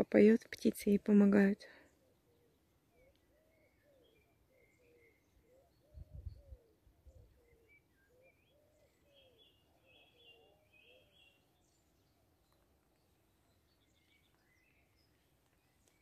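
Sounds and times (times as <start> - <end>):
small birds chirping: 0.0 - 16.0
cuckoo calling: 2.2 - 11.4.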